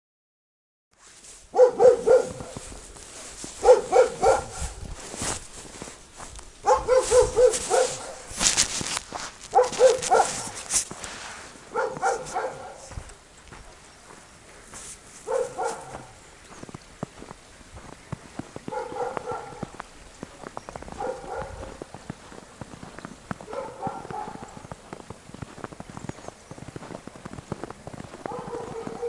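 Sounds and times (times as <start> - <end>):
footsteps crunching in snow: 1.0 - 29.0
dog barking: 1.5 - 2.7, 3.6 - 4.8, 6.6 - 8.3, 9.5 - 10.7, 11.7 - 13.0, 15.2 - 16.2, 18.7 - 19.8, 20.9 - 21.8, 23.4 - 24.6, 28.2 - 29.0.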